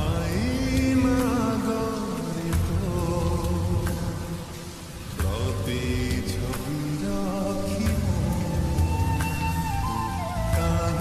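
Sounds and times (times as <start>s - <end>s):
melodic music with bass and percussion: 7.8s - 11.0s.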